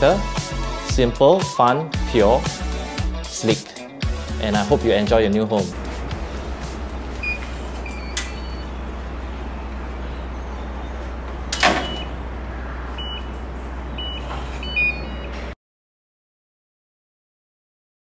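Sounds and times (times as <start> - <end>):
steady low hum: 4.1 - 15.3
electronic lock beeps: 7.2 - 8.8, 11.5 - 12.2, 13.0 - 13.4, 14.0 - 15.6
metal gate clanking shut: 11.5 - 12.1.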